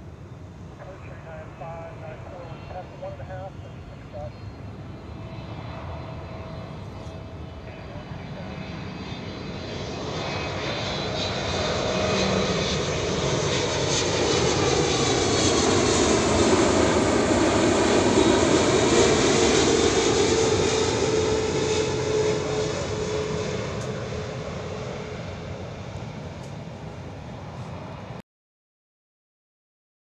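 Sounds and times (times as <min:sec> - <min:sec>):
jet airliner passing overhead: 0:00.0 - 0:28.2
jet engine whine: 0:00.0 - 0:28.2.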